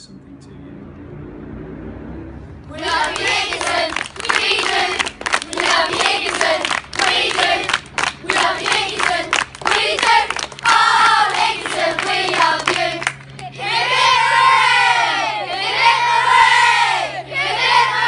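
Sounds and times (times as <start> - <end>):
children chanting and cheering: 2.7 - 18.0
children shouting: 12.9 - 18.0.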